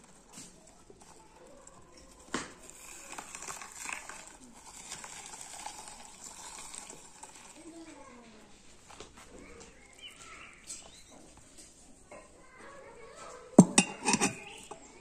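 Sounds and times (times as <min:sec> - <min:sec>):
meat grinder crunching onion: 0:00.0 - 0:11.7.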